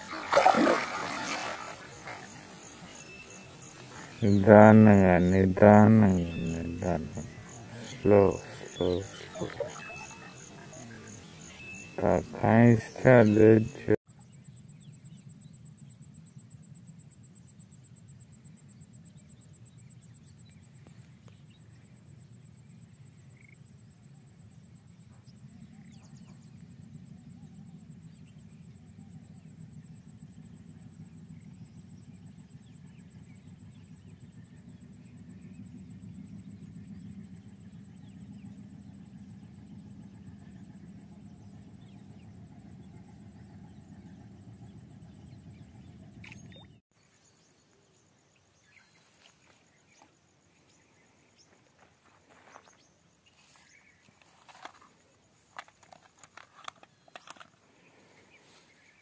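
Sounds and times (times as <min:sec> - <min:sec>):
low rumble: 0:30.2 - 0:46.8.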